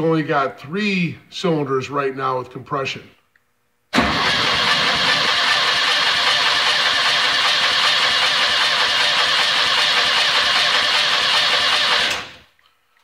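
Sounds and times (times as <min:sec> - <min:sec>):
engine cranking on starter: 0:03.9 - 0:12.5.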